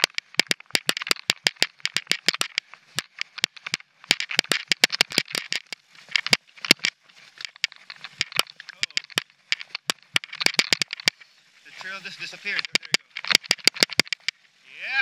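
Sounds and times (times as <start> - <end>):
bike rattling over rocks: 0.0 - 14.6
tyres hissing on gravel: 11.2 - 12.7.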